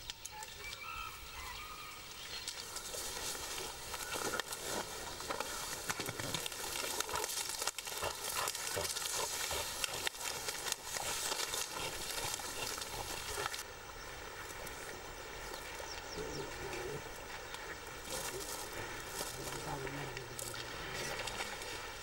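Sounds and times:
dry grass rustling and crackling: 1.4 - 22.0.

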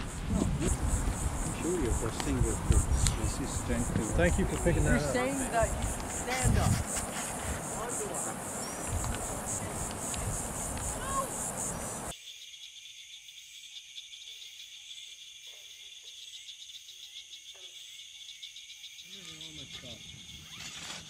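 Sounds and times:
faint voices: 0.0 - 11.7
high-pitched insect chorus: 0.0 - 21.0
insects chirping: 0.0 - 21.0.

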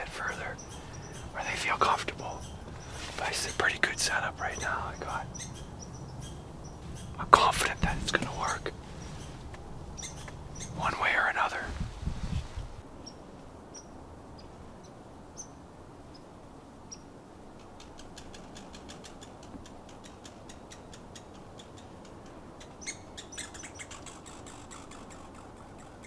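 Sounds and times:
rapid sharp ticking calls: 0.0 - 11.8, 17.8 - 26.0.

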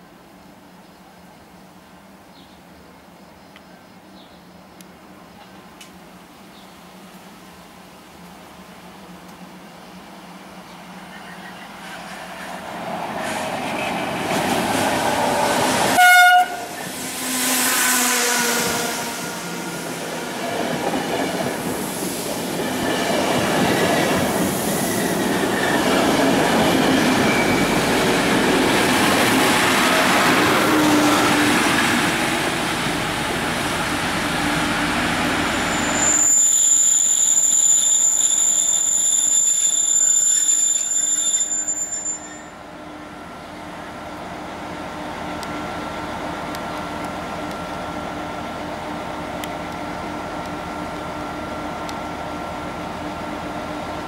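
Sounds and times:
diesel locomotive whine: 0.0 - 54.0
train horn blast: 16.0 - 19.8.

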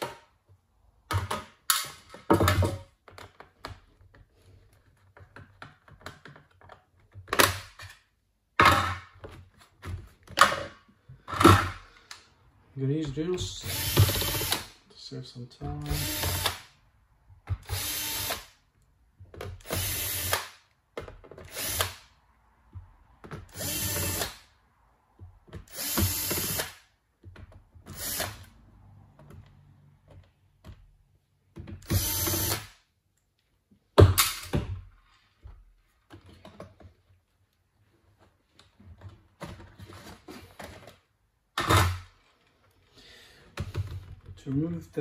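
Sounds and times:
cordless drill spinning: 13.6 - 14.8, 15.8 - 16.7, 17.6 - 18.5, 19.6 - 20.6, 21.4 - 22.1, 23.5 - 24.4, 25.7 - 26.8, 27.9 - 28.5, 31.8 - 32.8.

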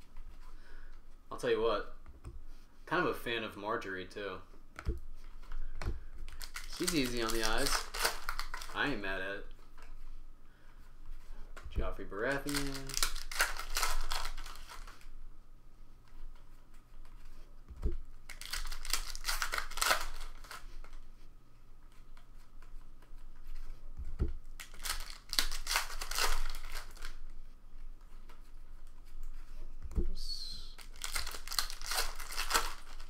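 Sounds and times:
foil wrappers crinkling and tearing: 6.2 - 9.2, 12.2 - 15.0, 18.2 - 21.0, 24.5 - 27.3, 30.7 - 33.0.

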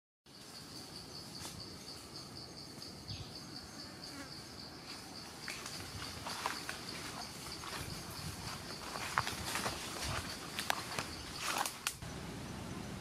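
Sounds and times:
insect chirping: 0.3 - 13.0.

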